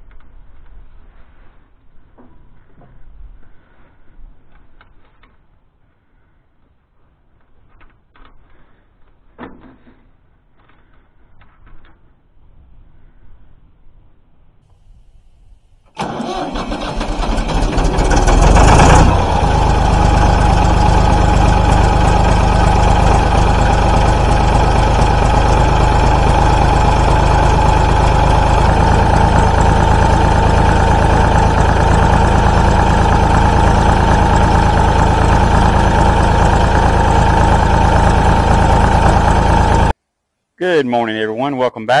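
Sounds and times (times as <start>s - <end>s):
diesel engine idling: 16.0s - 40.0s.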